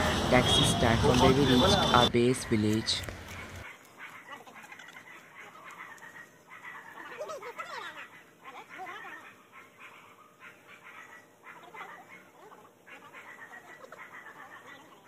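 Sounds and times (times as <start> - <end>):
faint animal calls: 3.3 - 15.0.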